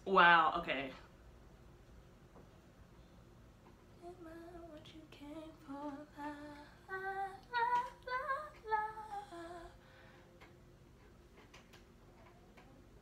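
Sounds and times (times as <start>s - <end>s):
woman singing unaccompanied: 4.0s - 9.8s.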